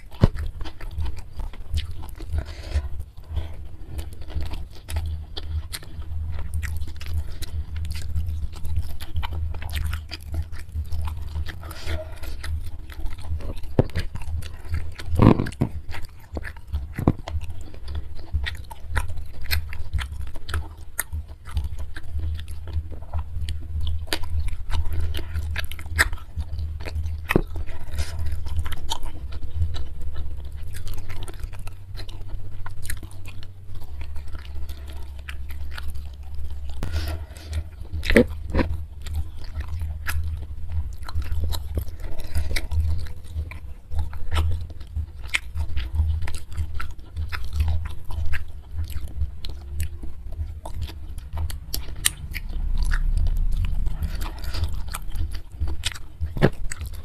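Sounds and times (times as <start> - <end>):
close chewing with wet mouth clicks: 0.0 - 57.0.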